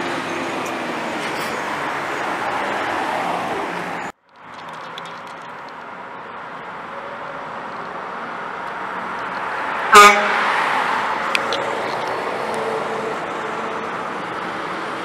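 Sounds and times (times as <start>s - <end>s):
dump truck passing by: 0.0s - 4.7s, 5.5s - 15.0s
truck horn toot: 9.9s - 10.5s.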